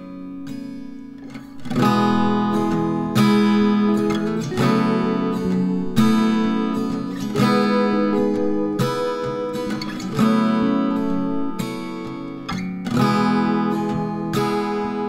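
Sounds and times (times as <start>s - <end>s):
acoustic guitar strumming: 0.0s - 15.0s.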